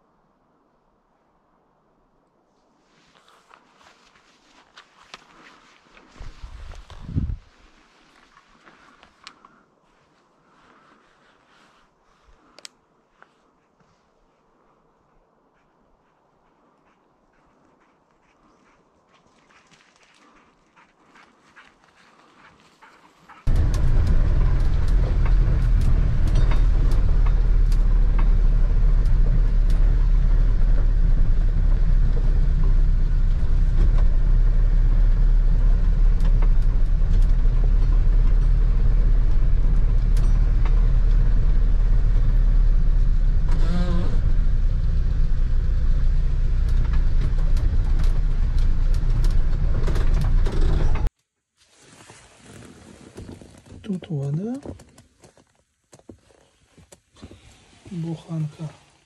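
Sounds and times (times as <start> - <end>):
van engine and road rumble: 3.2 - 9.3, 23.4 - 51.2.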